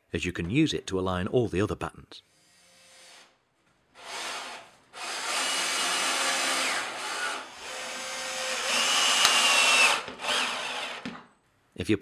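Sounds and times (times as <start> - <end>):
cordless drill motor whine: 4.0 - 11.1.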